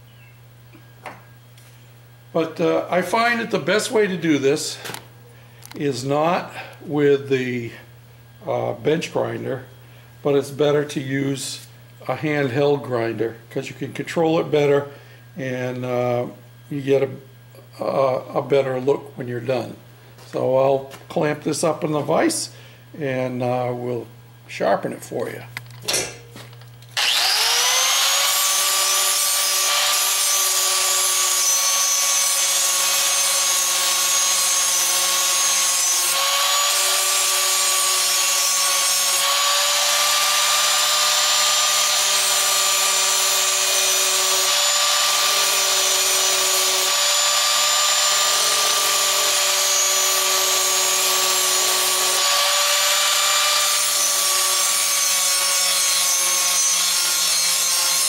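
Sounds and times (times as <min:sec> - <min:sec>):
angle grinder grinding steel: 0:27.0 - 0:58.0.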